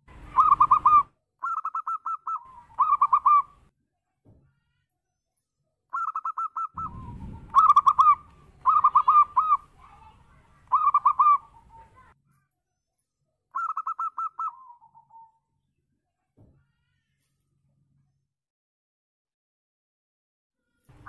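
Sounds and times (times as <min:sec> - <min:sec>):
dove cooing: 0:00.3 - 0:03.6, 0:06.0 - 0:09.7, 0:10.7 - 0:11.8, 0:13.6 - 0:15.3.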